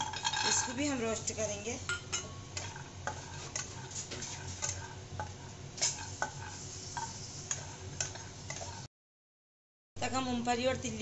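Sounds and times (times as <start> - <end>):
nuts and spatula scraping pan: 0.0 - 1.6, 2.5 - 8.9.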